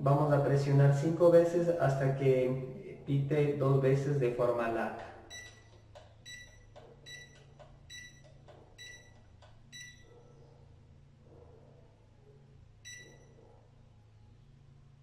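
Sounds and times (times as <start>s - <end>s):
short high beeps: 5.3s - 8.2s, 8.8s - 10.1s, 12.8s - 13.3s.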